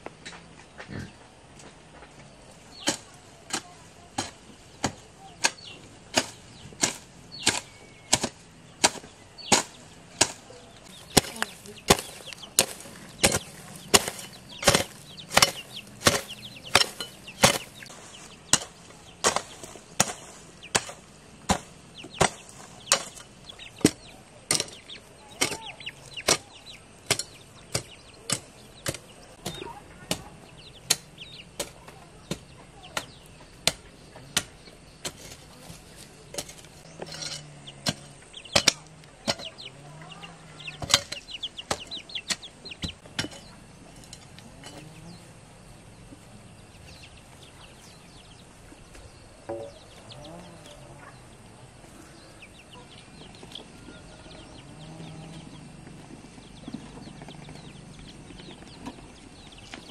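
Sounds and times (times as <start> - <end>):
hoe chopping into dry soil: 2.7 - 45.2.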